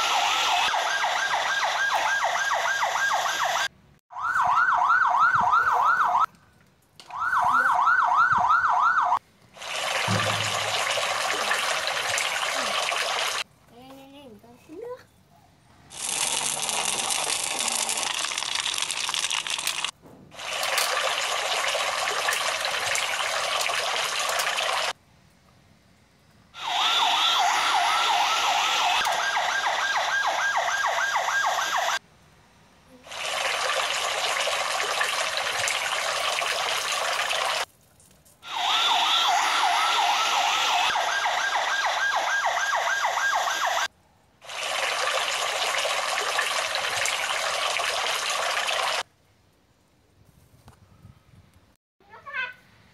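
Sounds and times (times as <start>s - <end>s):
toy fire truck spraying water: 0.0s - 3.7s, 9.6s - 13.4s, 15.9s - 25.0s, 26.6s - 32.0s, 33.0s - 37.7s, 38.4s - 49.0s
electronic siren warbling: 0.0s - 6.3s, 7.1s - 9.2s, 26.6s - 32.0s, 38.5s - 43.9s.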